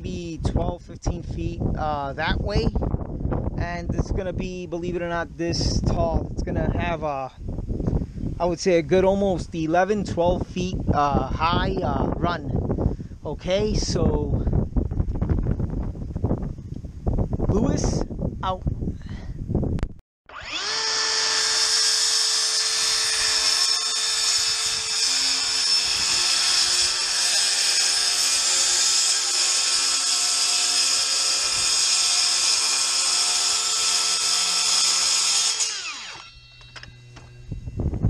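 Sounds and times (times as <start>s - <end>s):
circular saw cutting wood: 20.3s - 37.6s.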